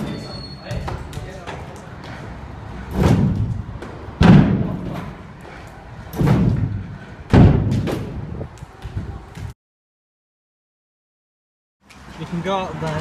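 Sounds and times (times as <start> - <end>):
scooter wheels rolling rumble: 0.7 - 9.6.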